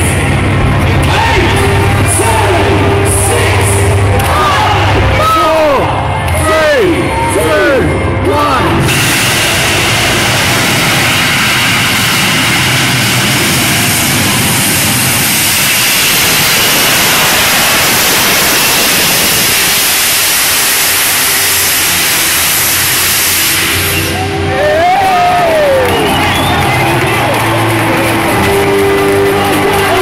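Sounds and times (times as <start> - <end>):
jetpack thrust roar: 8.8 - 30.0.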